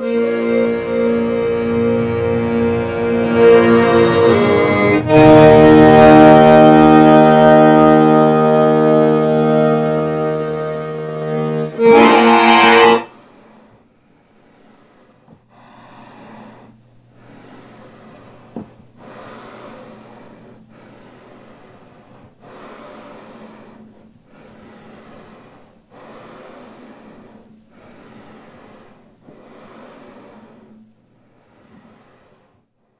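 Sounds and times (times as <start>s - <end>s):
low hum: 0.0s - 25.9s.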